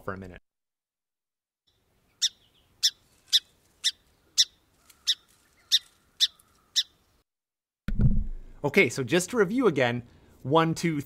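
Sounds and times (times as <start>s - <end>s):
sparrow chip calls: 1.7s - 7.2s.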